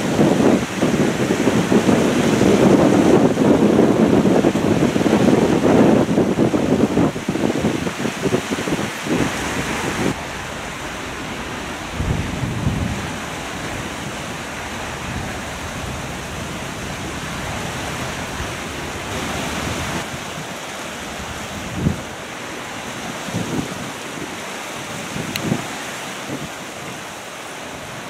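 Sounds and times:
strong wind on microphone: 0:00.0 - 0:28.0.

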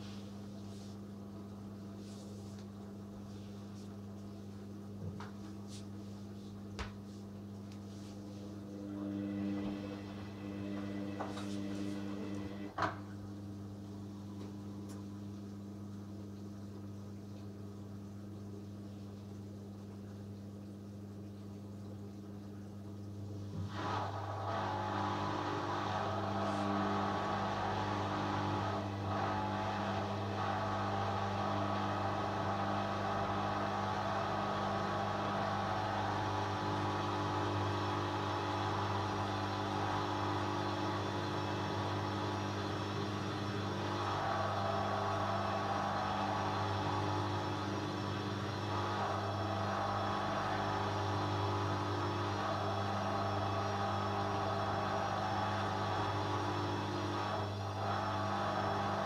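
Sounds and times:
washing machine spinning: 0:00.0 - 0:59.0.

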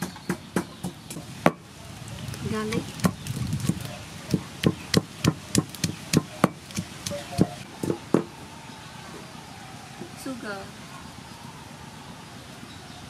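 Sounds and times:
wooden pestle pounding in mortar: 0:03.0 - 0:08.3.

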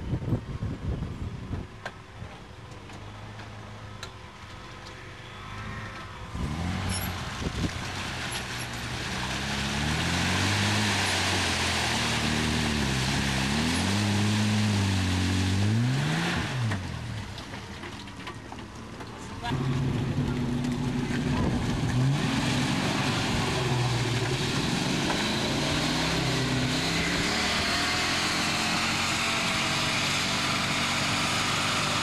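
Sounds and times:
van engine labouring: 0:00.0 - 0:32.0
rushing hiss of churned water: 0:07.5 - 0:16.7.

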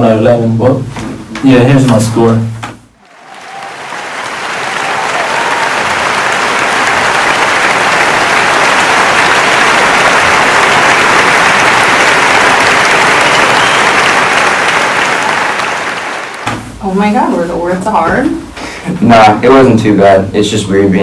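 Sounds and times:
audience applause: 0:03.0 - 0:16.5.

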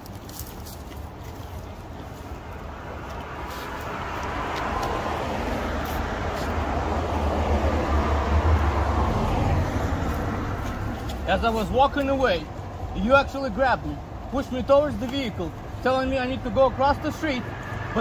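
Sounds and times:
vehicle driving past: 0:03.9 - 0:11.0.

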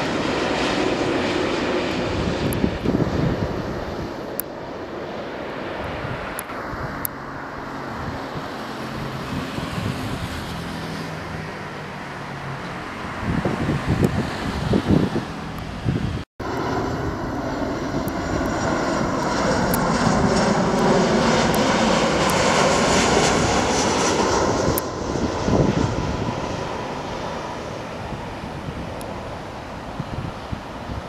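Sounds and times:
jet airliner passing low overhead: 0:00.0 - 0:31.0.

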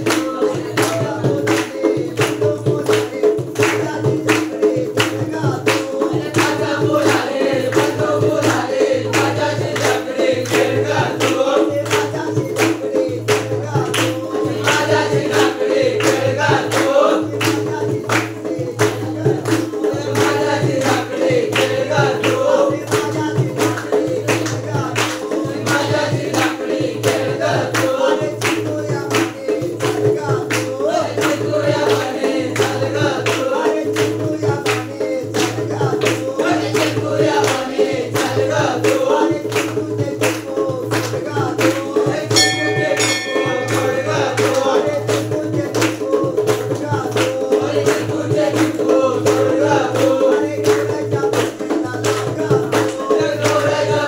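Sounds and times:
group folk singing: 0:00.0 - 0:54.0
hand clapping: 0:00.0 - 0:54.0
barrel drum beating: 0:42.1 - 0:47.3
brief high ringing: 0:42.4 - 0:45.0.

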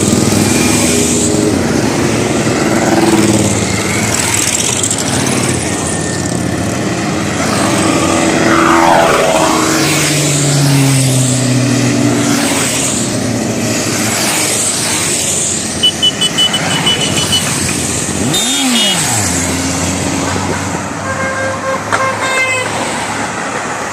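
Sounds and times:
motorcycles riding past: 0:00.0 - 0:21.0
motorcycle horn toots: 0:15.8 - 0:17.6, 0:18.2 - 0:19.2, 0:21.0 - 0:22.7.

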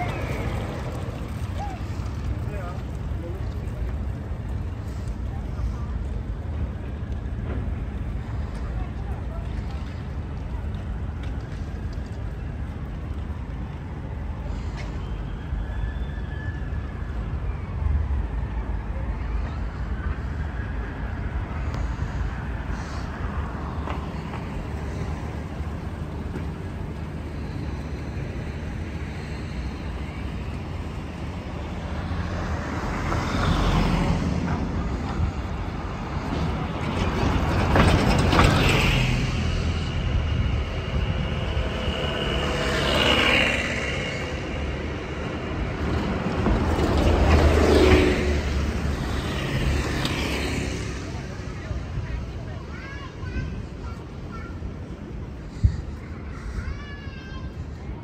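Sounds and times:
road traffic rumble: 0:00.0 - 0:58.0
vehicles passing: 0:00.0 - 0:58.0.

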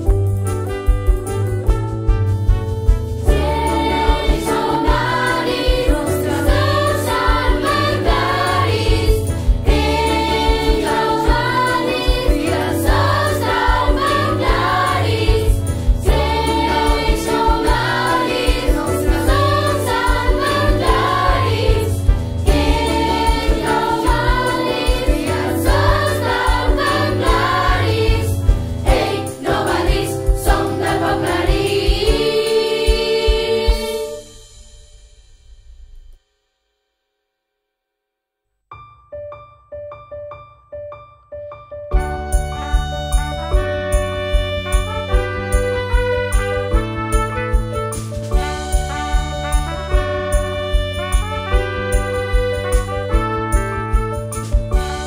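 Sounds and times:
group of voices singing: 0:03.3 - 0:34.2.

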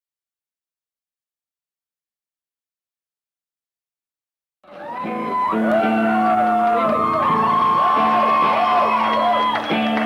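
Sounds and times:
electric guitar: 0:04.7 - 0:10.0
live rock band music: 0:05.0 - 0:10.0.

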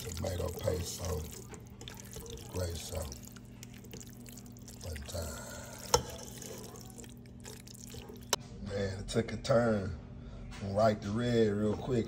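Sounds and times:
spaghetti stirred with spatula: 0:00.0 - 0:08.4.

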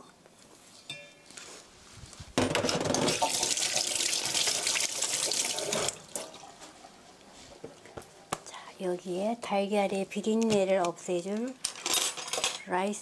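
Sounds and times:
water running from a tap: 0:03.1 - 0:06.4.

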